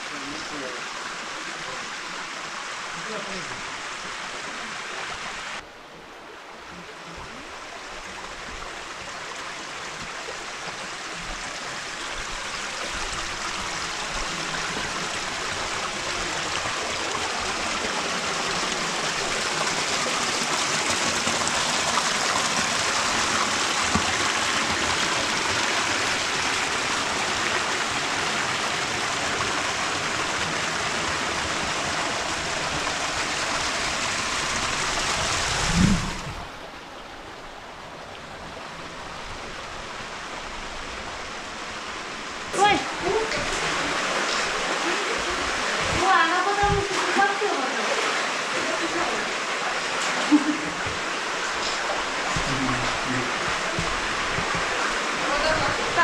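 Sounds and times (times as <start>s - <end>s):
mountain stream rushing: 0.0s - 56.0s.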